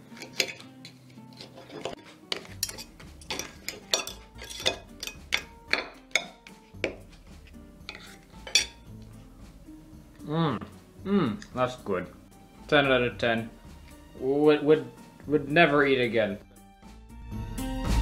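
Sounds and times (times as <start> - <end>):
background music: 0.0 - 18.0
fork and knife clinking on plate: 0.2 - 7.0, 7.8 - 8.9.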